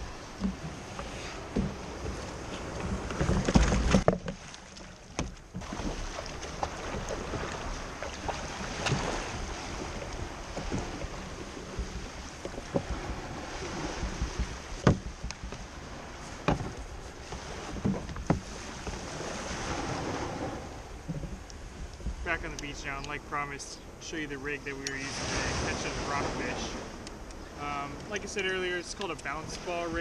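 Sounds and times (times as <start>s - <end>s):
small waves washing: 0.0s - 30.0s
wind on microphone: 5.5s - 23.2s
sharp knocks: 14.0s - 15.6s.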